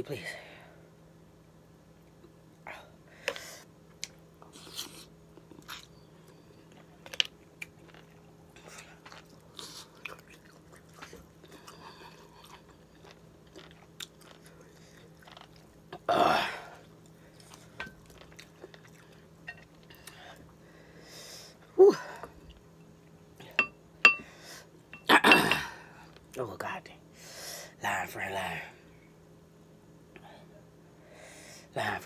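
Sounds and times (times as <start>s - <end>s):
person chewing wetly: 4.0s - 16.1s, 16.8s - 20.5s
person burping: 25.0s - 25.8s.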